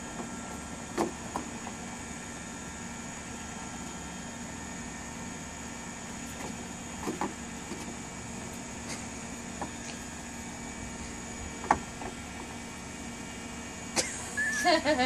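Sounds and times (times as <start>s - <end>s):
toy fan motor humming: 14.0s - 15.0s.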